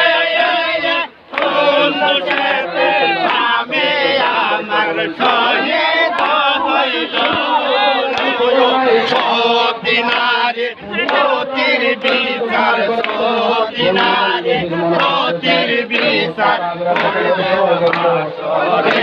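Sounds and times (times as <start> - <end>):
crowd of men chanting: 0.0 - 19.0.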